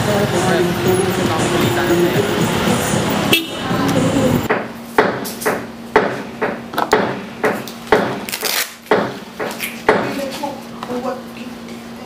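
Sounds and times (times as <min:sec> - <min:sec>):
voices: 0:00.0 - 0:04.5
street noise: 0:00.0 - 0:12.0.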